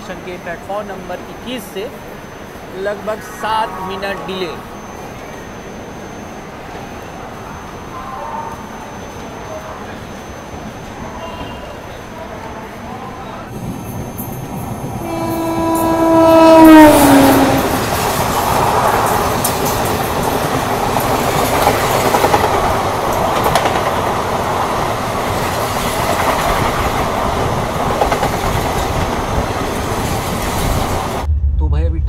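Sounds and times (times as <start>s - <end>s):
passing train coaches rushing: 0.0s - 31.3s
train horn: 15.0s - 18.0s.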